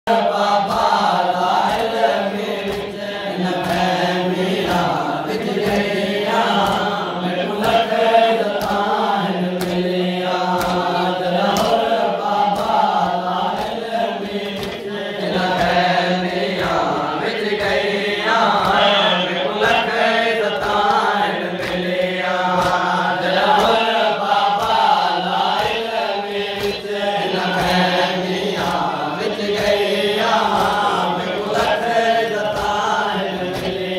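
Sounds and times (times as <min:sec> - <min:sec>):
crowd of men singing in unison: 0:00.1 - 0:33.9
lead reciter chanting: 0:00.1 - 0:33.9
hands slapping chests: 0:00.6 - 0:03.0, 0:04.5 - 0:07.9, 0:08.5 - 0:09.0, 0:09.6 - 0:15.9, 0:17.6 - 0:26.9, 0:32.5 - 0:33.9.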